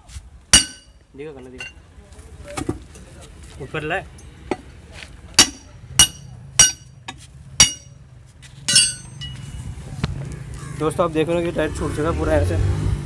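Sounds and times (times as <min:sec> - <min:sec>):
hammer striking metal: 0:00.6 - 0:01.0, 0:05.4 - 0:08.0, 0:08.7 - 0:09.5
rattling metallic clatter: 0:08.7 - 0:09.6.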